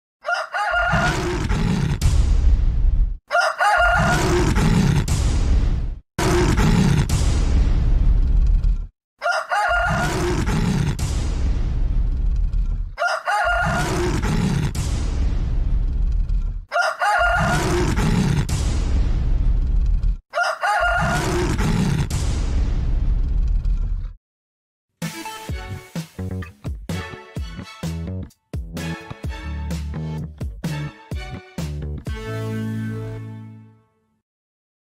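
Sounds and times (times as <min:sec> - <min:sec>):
rooster crowing: 0:00.2 - 0:01.2, 0:03.3 - 0:04.2, 0:09.2 - 0:10.2, 0:13.0 - 0:13.9, 0:16.7 - 0:17.7, 0:20.3 - 0:21.2
deep rumbling sound effect: 0:07.0 - 0:08.9, 0:10.9 - 0:13.0, 0:14.7 - 0:16.6, 0:18.4 - 0:20.2, 0:22.1 - 0:24.2.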